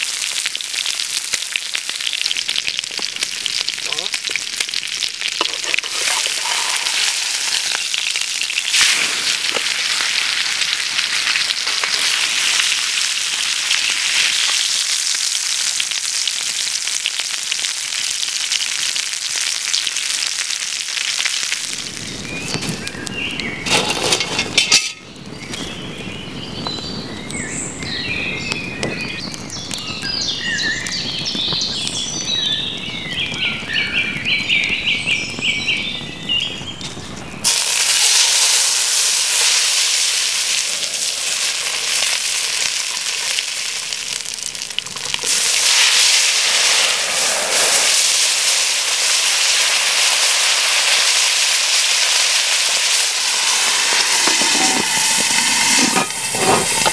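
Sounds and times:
food sizzling in a pot: 0:00.0 - 0:25.8, 0:37.4 - 0:56.9
campfire crackling and popping: 0:00.0 - 0:56.9
birdsong: 0:22.0 - 0:23.7, 0:25.0 - 0:37.4.

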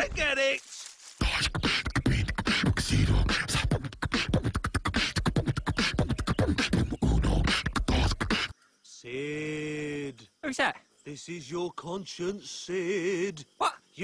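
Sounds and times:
person beatboxing: 0:01.2 - 0:08.5.

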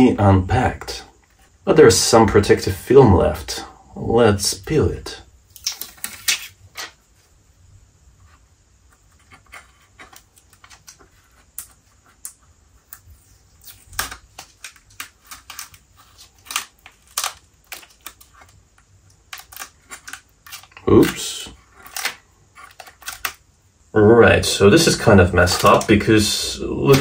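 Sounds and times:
fingers peeling plastic film: 0:05.5 - 0:07.0, 0:10.0 - 0:23.4, 0:24.8 - 0:26.1.

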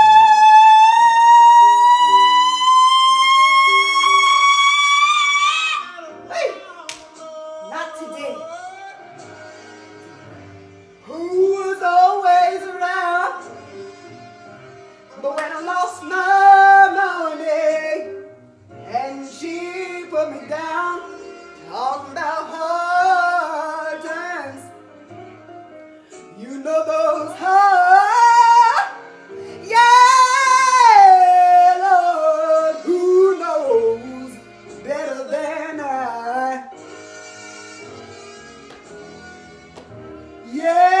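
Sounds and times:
woman singing with vibrato: 0:00.0 - 0:07.0, 0:15.2 - 0:18.1, 0:29.6 - 0:36.7, 0:40.4 - 0:41.0.

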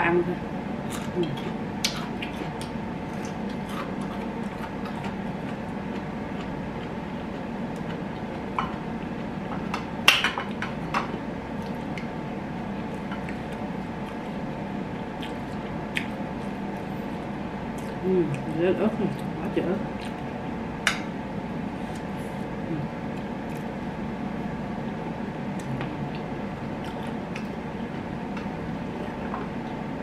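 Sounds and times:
steady low hum: 0:00.0 - 0:30.0
person chewing: 0:00.9 - 0:09.4, 0:15.0 - 0:17.2, 0:19.9 - 0:20.3, 0:25.5 - 0:27.6.

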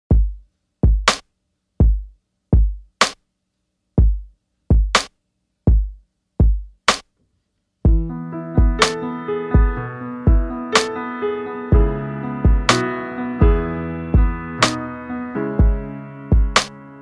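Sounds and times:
drum machine beat: 0:00.1 - 0:03.2, 0:04.0 - 0:07.1, 0:07.9 - 0:11.0, 0:11.7 - 0:14.8, 0:15.6 - 0:16.8
keyboard chords: 0:07.9 - 0:17.0.

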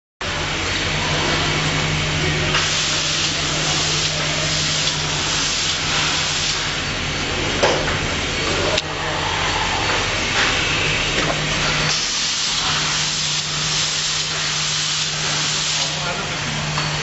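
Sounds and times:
machine hiss: 0:02.5 - 0:06.8, 0:11.8 - 0:16.1.

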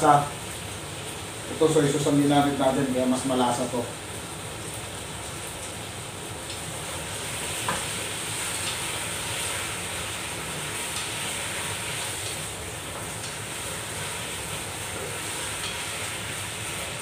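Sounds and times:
chicken sizzling in pot: 0:06.5 - 0:17.0.

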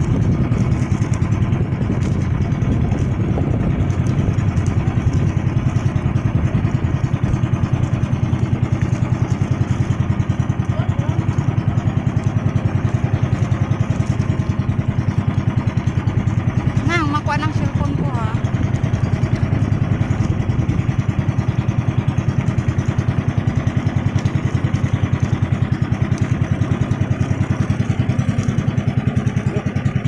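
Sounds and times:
boat engine throbbing: 0:00.0 - 0:30.0.

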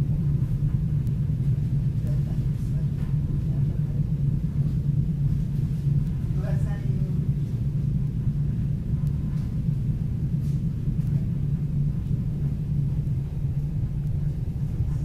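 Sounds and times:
train rumbling on track: 0:00.0 - 0:15.0.

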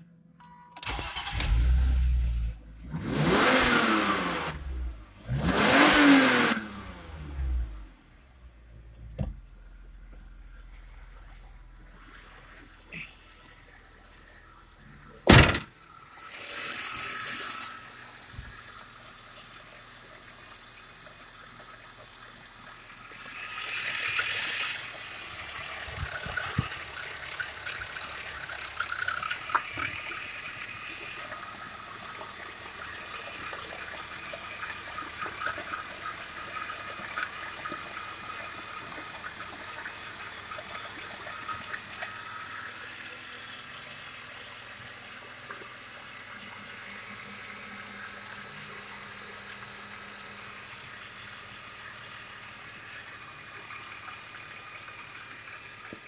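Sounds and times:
engine starter cranking: 0:00.8 - 0:02.2, 0:15.2 - 0:17.7
car engine idling: 0:00.8 - 0:56.0
light fast engine ticking: 0:15.9 - 0:56.0.

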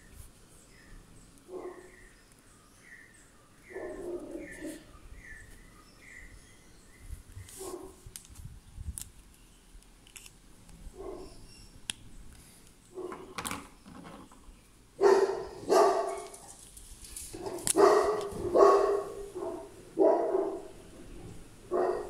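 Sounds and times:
dog barking: 0:01.5 - 0:01.9, 0:03.7 - 0:04.8, 0:07.6 - 0:08.0, 0:11.0 - 0:11.4, 0:13.0 - 0:13.2, 0:15.0 - 0:16.4, 0:17.4 - 0:20.8, 0:21.7 - 0:22.0.

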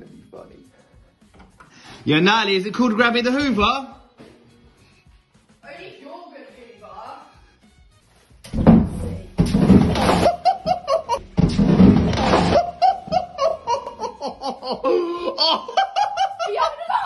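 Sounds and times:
ironing board clattering: 0:08.5 - 0:12.8
person laughing: 0:10.1 - 0:11.2, 0:12.5 - 0:17.0.

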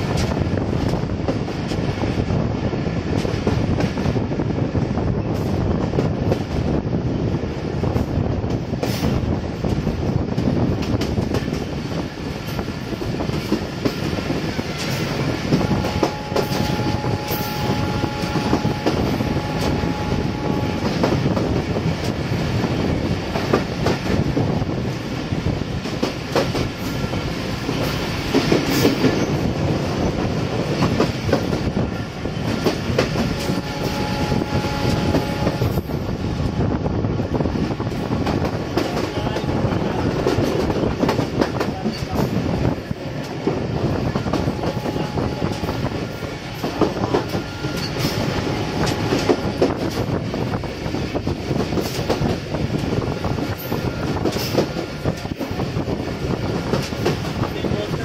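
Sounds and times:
train wheels running on rails: 0:00.0 - 0:58.0
clacks over rail joints: 0:07.9 - 0:11.8, 0:12.4 - 0:22.2, 0:25.8 - 0:36.0, 0:37.6 - 0:58.0.

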